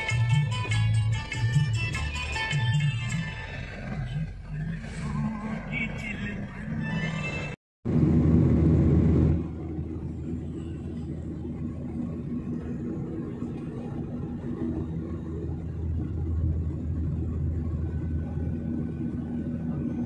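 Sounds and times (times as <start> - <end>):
jet engine drone in cabin: 7.9 - 20.0.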